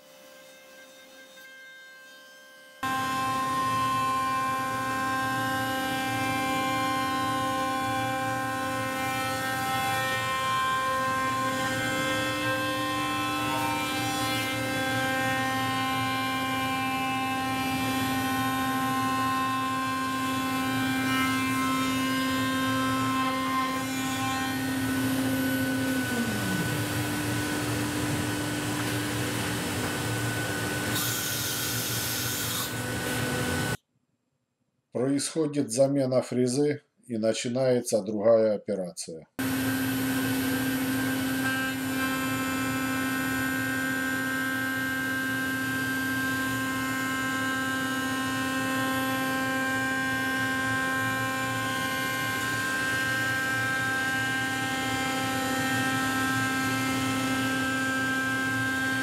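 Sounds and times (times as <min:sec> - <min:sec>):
router spindle whining: 0:23.8 - 0:33.8.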